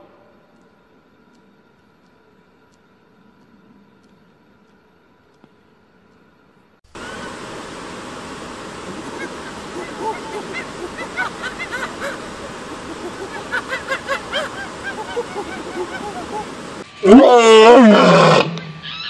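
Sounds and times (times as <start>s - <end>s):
running water rushing: 6.9s - 16.9s
chirping calls: 7.0s - 16.8s.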